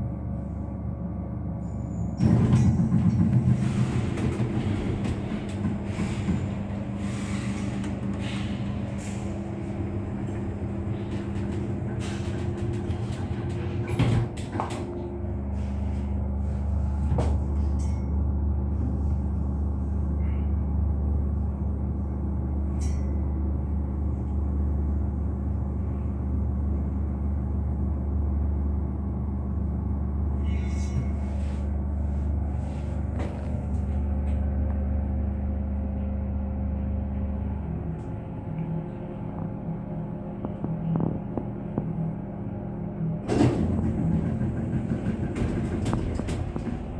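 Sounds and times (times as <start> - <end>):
elevator drive humming: 0.0 - 46.9
elevator doors sliding shut: 2.0 - 15.8, 43.3 - 46.9.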